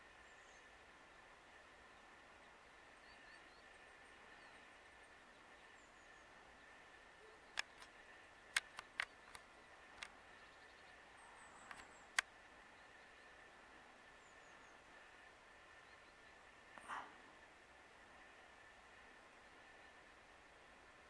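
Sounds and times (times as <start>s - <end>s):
sharp short clicks: 7.5s - 10.2s, 11.6s - 12.3s.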